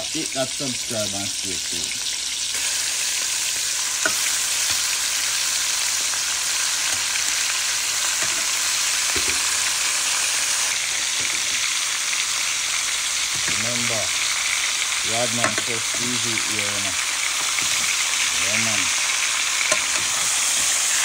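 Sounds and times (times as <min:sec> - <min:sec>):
meat sizzling in oil: 0:00.0 - 0:21.0.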